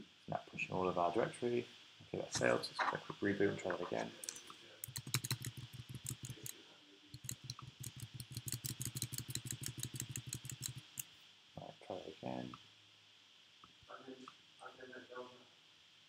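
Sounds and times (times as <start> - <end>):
keyboard keys clicking: 4.2 - 6.5, 7.2 - 11.0.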